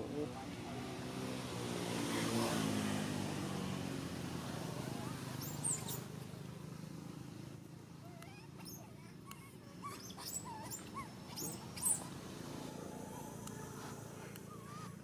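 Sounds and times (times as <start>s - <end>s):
baby monkey squeaking: 5.4s - 6.1s, 8.3s - 12.1s.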